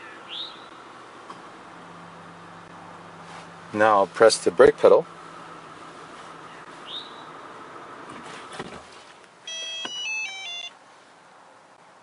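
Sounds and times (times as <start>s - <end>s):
car engine idling: 0.1s - 8.2s.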